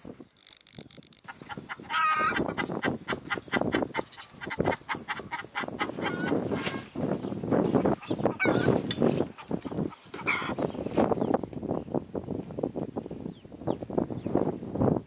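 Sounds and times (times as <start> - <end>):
chickens clucking: 1.2 - 10.9
chicken squawk: 1.3 - 6.9, 8.0 - 10.6.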